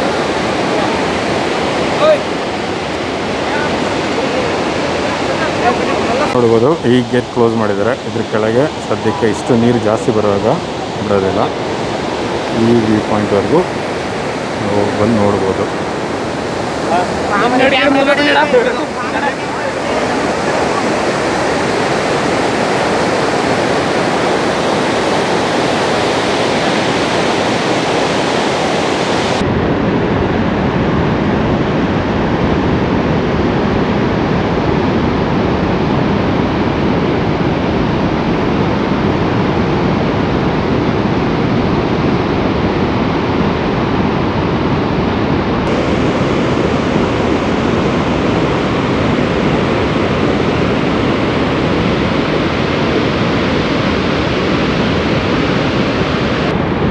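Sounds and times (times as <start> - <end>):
waterfall rushing loudly: 0.0 - 29.5, 45.6 - 56.9.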